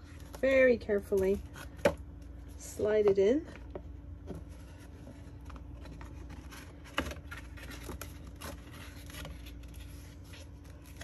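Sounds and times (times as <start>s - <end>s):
cardstock rustling and scraping: 2.8s - 11.0s.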